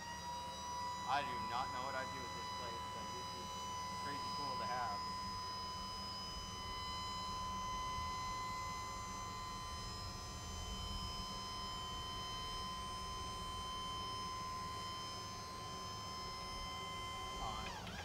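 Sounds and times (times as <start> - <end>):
hydraulic hoist whining: 0.0 - 12.5.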